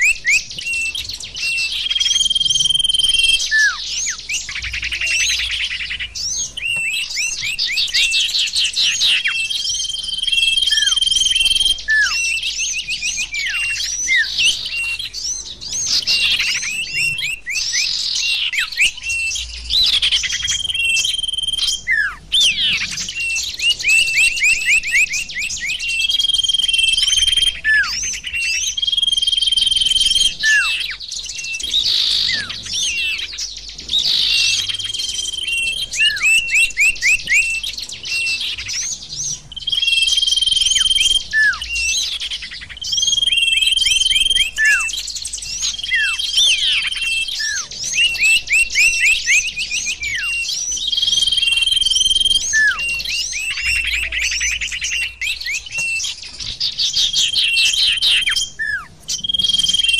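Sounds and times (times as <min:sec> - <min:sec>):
bird whistle: 0:00.0 - 0:59.9
recorded songbird chirping trills: 0:00.0 - 0:59.9.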